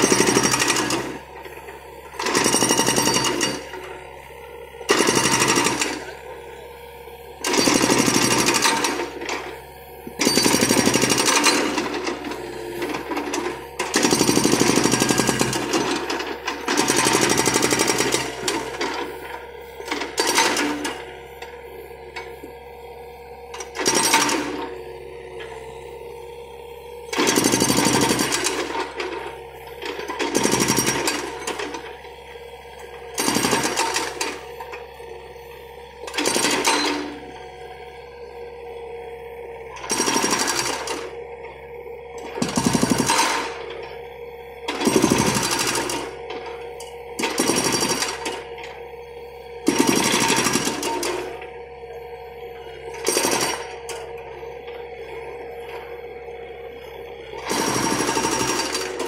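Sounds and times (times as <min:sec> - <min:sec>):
hydraulic breaker hammering concrete: 0:00.0 - 0:01.4, 0:02.2 - 0:03.8, 0:04.9 - 0:06.2, 0:07.4 - 0:09.5, 0:10.2 - 0:19.2, 0:19.8 - 0:21.1, 0:23.6 - 0:24.6, 0:27.2 - 0:31.8, 0:33.2 - 0:34.4, 0:36.1 - 0:37.3, 0:39.8 - 0:41.1, 0:42.3 - 0:43.6, 0:44.7 - 0:46.2, 0:47.2 - 0:48.6, 0:49.6 - 0:51.4, 0:52.9 - 0:54.0, 0:57.4 - 0:59.0
diesel engine and hydraulics running: 0:00.0 - 0:59.0.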